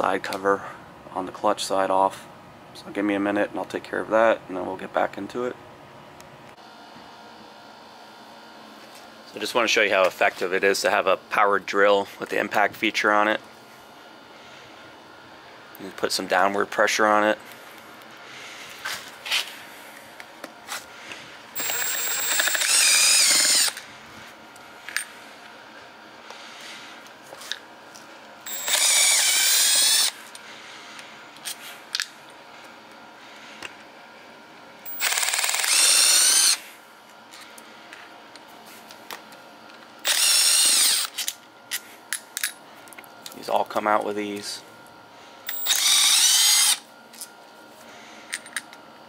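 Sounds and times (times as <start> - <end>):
impact driver running: 21.6 - 23.8, 28.5 - 30.2, 34.9 - 36.6, 40.0 - 41.2, 45.5 - 46.8.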